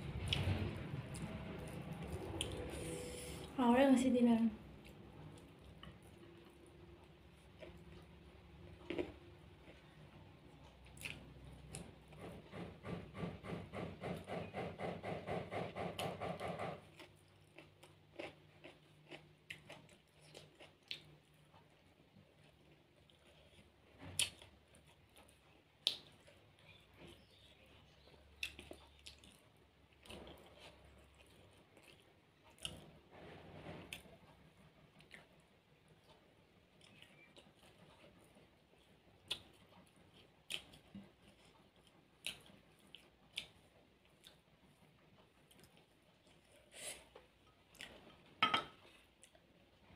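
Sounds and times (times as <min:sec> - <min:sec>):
crunching of crisp food: 0:07.3 - 0:12.0, 0:16.9 - 0:33.0
fingers working rice on plate: 0:12.1 - 0:17.1
wet eating clicks and smacks: 0:24.1 - 0:27.4.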